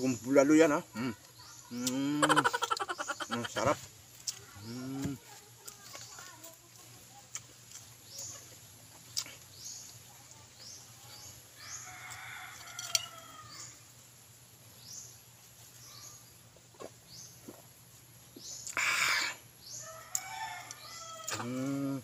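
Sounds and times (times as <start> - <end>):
bird chirping: 0.0 - 5.1, 7.3 - 12.2
rooster crowing: 11.6 - 13.8, 19.8 - 21.6.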